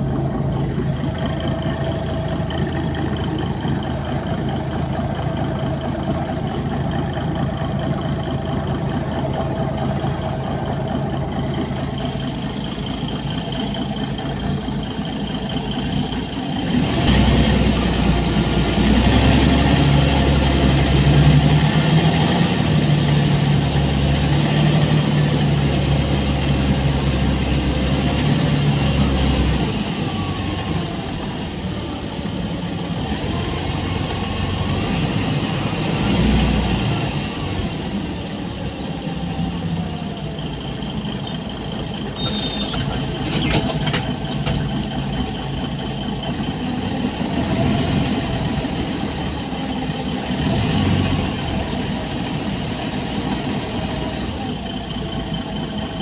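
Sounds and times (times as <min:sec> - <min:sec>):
bus engine drone: 0:00.0 - 0:56.0
road noise: 0:00.0 - 0:56.0
short hiss of air: 0:42.2 - 0:43.5.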